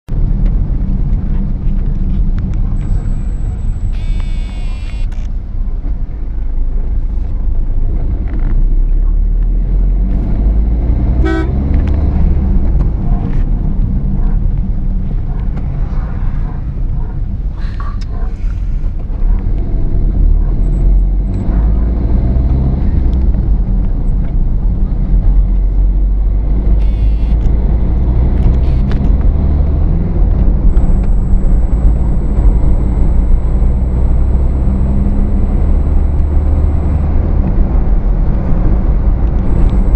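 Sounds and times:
car engine and road rumble: 0.1 - 39.9
car horn toots: 3.0 - 5.2, 11.2 - 11.7, 26.8 - 27.5, 28.5 - 29.0.

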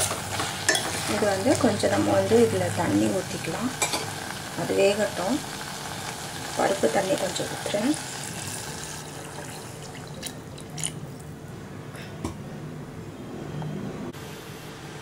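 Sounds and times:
water splashing into a pot: 5.9 - 11.3.

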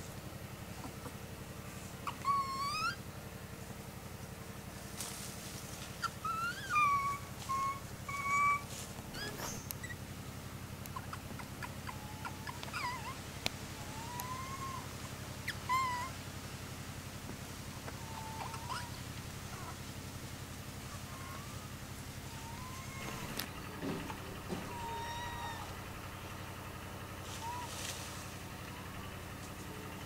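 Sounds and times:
infant monkey whimpering: 1.8 - 3.0, 5.9 - 10.0, 10.8 - 16.2, 17.6 - 19.8, 20.8 - 25.9, 27.2 - 27.9.

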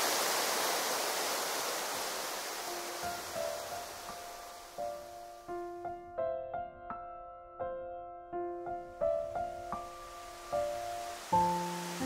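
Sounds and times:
rushing stream water: 0.0 - 5.5, 9.4 - 12.0
soft piano music: 2.6 - 12.0.

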